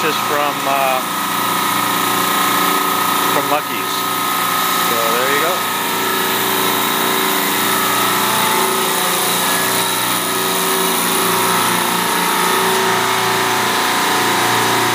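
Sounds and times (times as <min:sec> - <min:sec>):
refrigeration compressors humming: 0:00.0 - 0:14.9.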